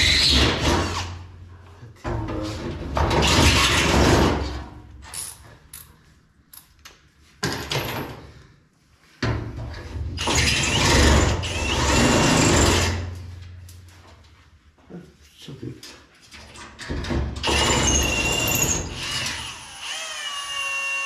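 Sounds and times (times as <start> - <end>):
power drill boring into metal: 17.4 - 21.0.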